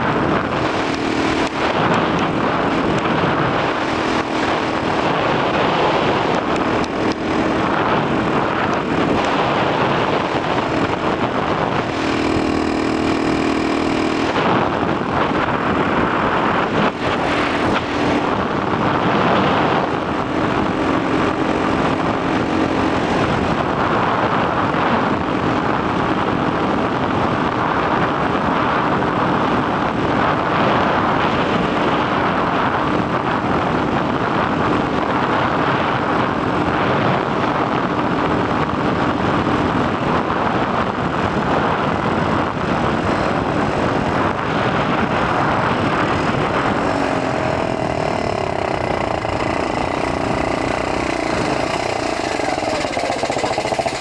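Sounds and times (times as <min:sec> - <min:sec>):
small two-stroke engine running: 0:00.0 - 0:26.8, 0:41.3 - 0:54.0
wind noise on microphone: 0:00.0 - 0:54.0.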